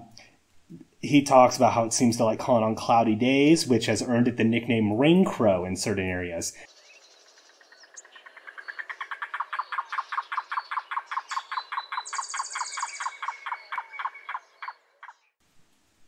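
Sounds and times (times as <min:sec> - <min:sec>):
cuckoo calling: 0:06.7 - 0:15.3
bird high trill: 0:06.8 - 0:15.2.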